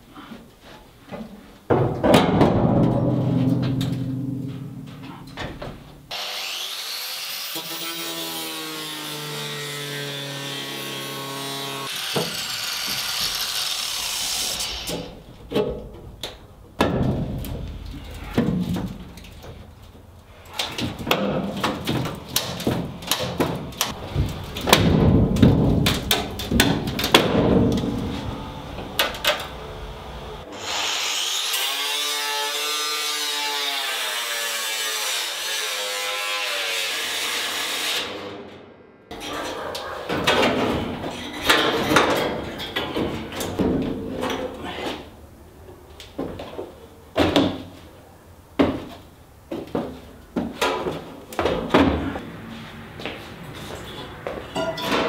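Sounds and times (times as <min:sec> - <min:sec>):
metal clanks and knocks: 0:01.2 - 0:06.1, 0:14.9 - 0:29.7, 0:40.1 - 0:44.6, 0:54.5 - 0:55.0
angle grinder cutting steel: 0:06.1 - 0:15.1, 0:30.5 - 0:38.2.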